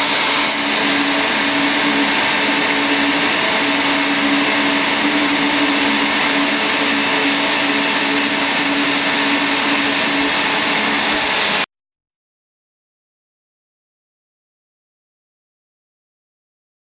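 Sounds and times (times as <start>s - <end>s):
jet engine whine and rush: 0.0s - 11.7s.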